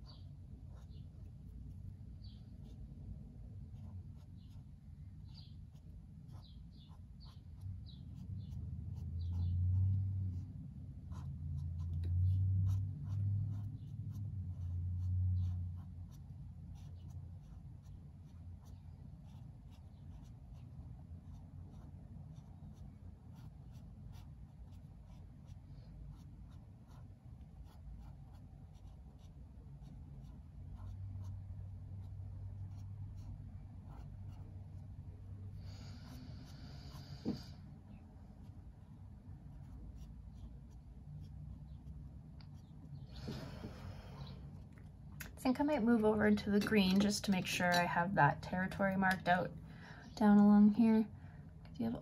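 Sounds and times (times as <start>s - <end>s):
marker scratching on paper: 3.6s - 34.9s, 38.4s - 43.4s.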